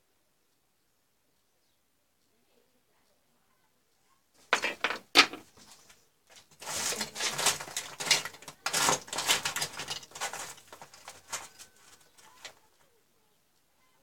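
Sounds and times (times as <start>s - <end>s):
scraping and rustling: 4.4s - 12.8s.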